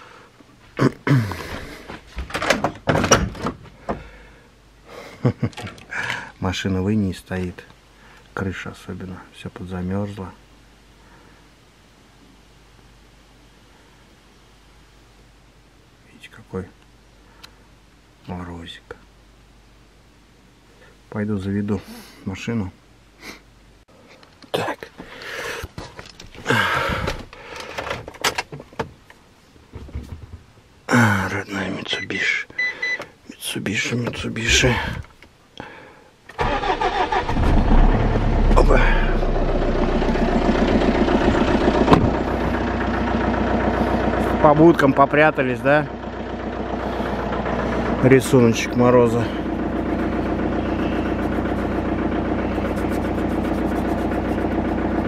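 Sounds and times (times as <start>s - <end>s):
door creaking: 2.1s - 3.6s
door knocks and rattles: 2.2s - 3.6s.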